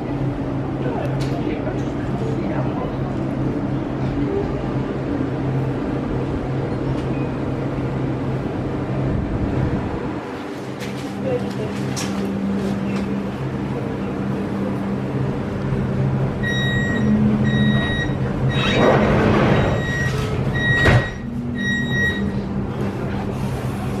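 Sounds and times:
train hum: 0:00.0 - 0:24.0
short high beeps: 0:16.4 - 0:18.9, 0:19.6 - 0:22.4
doors sliding shut: 0:17.7 - 0:24.0
door closing thump: 0:20.8 - 0:21.2.

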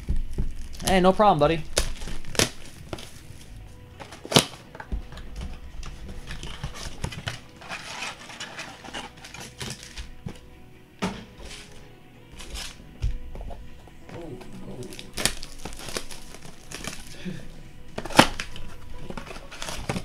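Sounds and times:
cardboard boxes tapping and knocking: 0:00.0 - 0:00.7, 0:04.0 - 0:07.4
card packs rustling and clicking: 0:00.0 - 0:20.0
quiet background music: 0:00.0 - 0:20.0.

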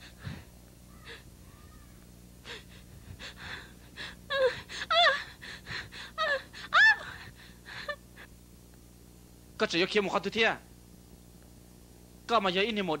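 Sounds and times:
person gasping breaths: 0:00.0 - 0:01.3, 0:02.4 - 0:08.0
person crying out high-pitched: 0:04.3 - 0:05.3, 0:06.2 - 0:07.2.

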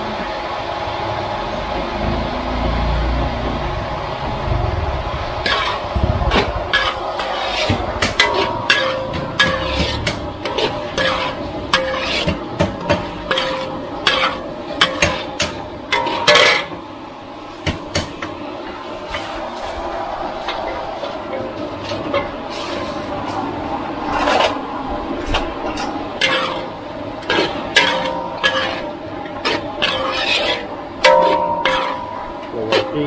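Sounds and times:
low rumble: 0:01.1 - 0:11.7, 0:18.5 - 0:26.2
metal ladle scraping a wok: 0:05.4 - 0:16.8, 0:18.9 - 0:23.4, 0:25.3 - 0:33.0.

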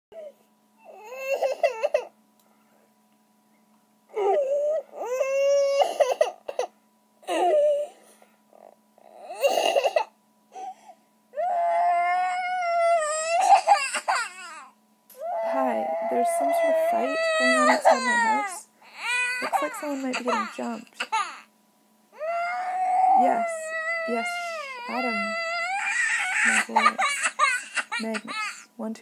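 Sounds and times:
baby crying: 0:00.8 - 0:02.1, 0:04.2 - 0:06.7, 0:09.0 - 0:10.7, 0:11.4 - 0:21.5, 0:22.2 - 0:28.6.

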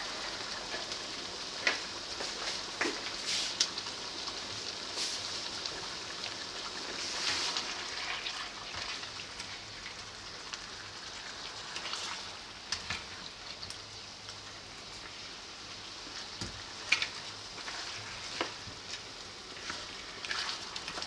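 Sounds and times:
chicken sizzling in a wok: 0:00.0 - 0:21.0
spatula scraping a pan: 0:17.6 - 0:18.6, 0:19.5 - 0:21.0.

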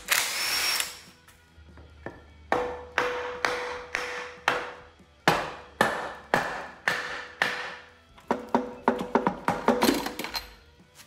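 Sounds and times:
hammer striking wooden block on metal: 0:02.0 - 0:10.1.

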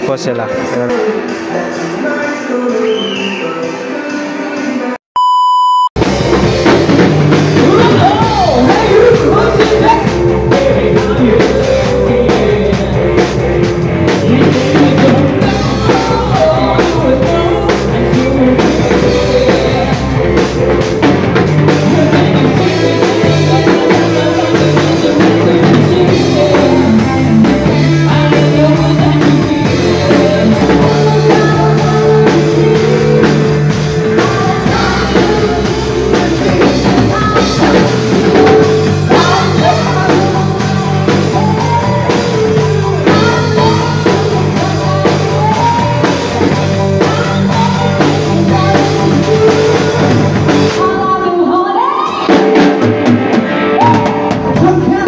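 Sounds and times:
person singing: 0:00.0 - 0:05.0, 0:07.3 - 0:52.9, 0:53.6 - 0:55.0
short beep: 0:05.2 - 0:06.0
drum kit with crashing cymbals: 0:06.0 - 0:50.9
electric guitar: 0:06.0 - 0:55.0.

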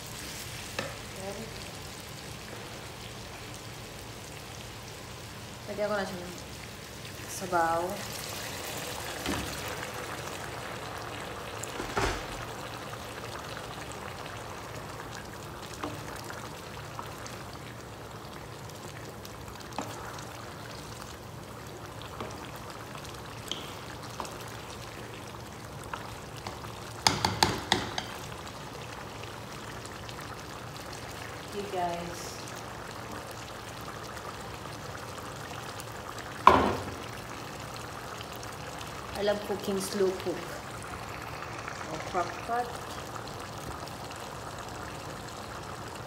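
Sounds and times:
broth sizzling and bubbling: 0:00.0 - 0:46.0
wooden spatula knocking pan: 0:27.0 - 0:28.2.

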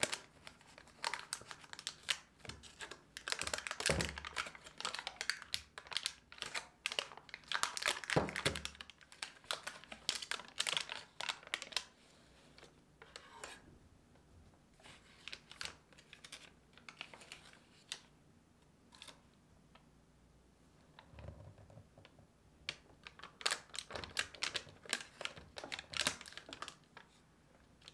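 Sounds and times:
foil wrapper crinkling: 0:00.0 - 0:11.9, 0:23.0 - 0:27.1.

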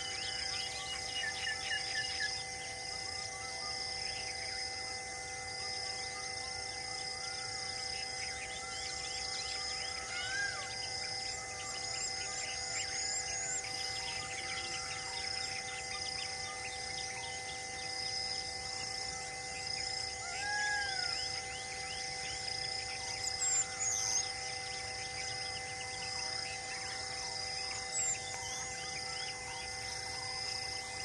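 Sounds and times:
insect drone: 0:00.0 - 0:31.0
whistled bird call: 0:20.2 - 0:24.4.

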